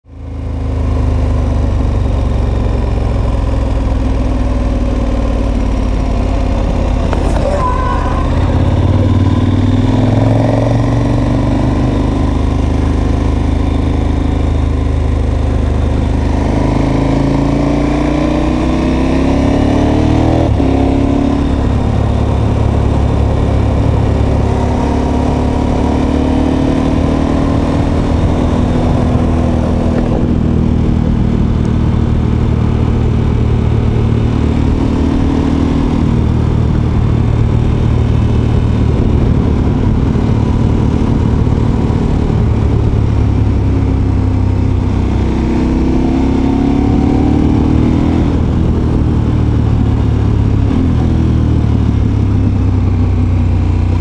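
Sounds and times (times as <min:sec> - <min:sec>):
motorcycle engine while riding: 0:00.0 - 0:54.0.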